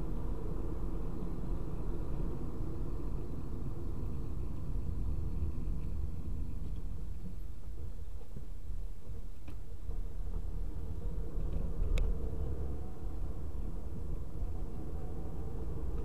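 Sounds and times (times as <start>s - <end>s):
tyre and road noise: 0.0s - 16.0s.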